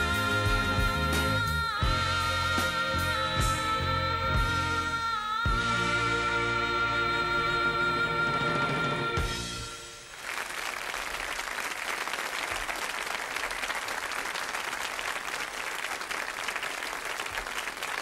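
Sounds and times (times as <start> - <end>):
music: 0.0 - 10.2
audience applauding: 10.1 - 18.0.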